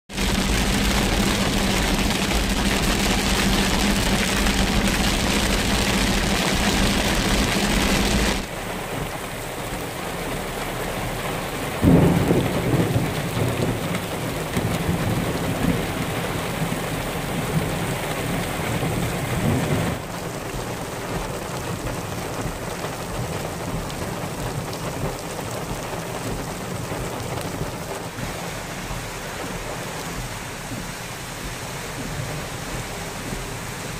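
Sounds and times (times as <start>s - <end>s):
thunder clap and rumble: 0.1s - 8.5s, 11.8s - 28.2s
water pouring down rock: 0.1s - 8.5s
heavy rain on car roof: 0.1s - 33.9s
steady rain: 0.1s - 33.9s
car hum: 0.2s - 9.8s.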